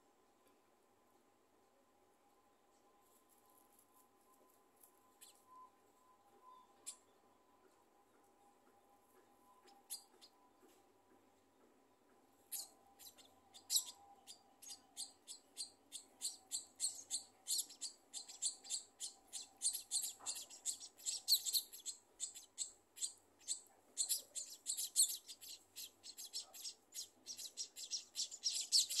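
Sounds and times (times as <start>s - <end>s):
nestlings cheeping: 12.5s - 29.0s.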